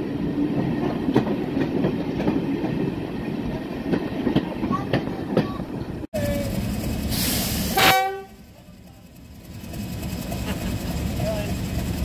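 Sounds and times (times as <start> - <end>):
rail-line noise: 0.0 - 12.0
locomotive engine rumble: 0.1 - 12.0
diesel locomotive horn blast: 7.1 - 8.5.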